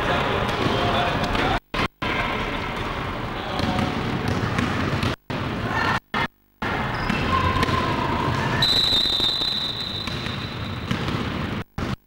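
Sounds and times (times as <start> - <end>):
basketballs bouncing on gym floor: 2.6 - 5.6, 6.9 - 12.0.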